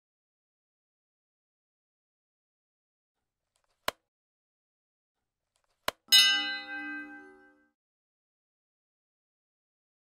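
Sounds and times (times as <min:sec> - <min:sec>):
small bell ringing: 0:06.1 - 0:07.7.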